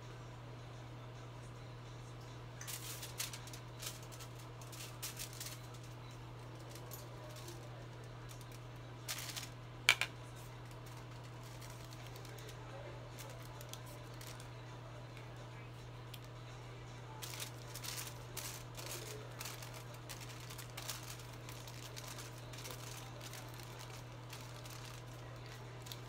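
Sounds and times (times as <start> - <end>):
steady low hum: 0.0 - 26.0
aluminium foil crinkling: 2.6 - 14.6, 17.1 - 26.0
comb working through hair: 10.3 - 14.6, 17.2 - 26.0.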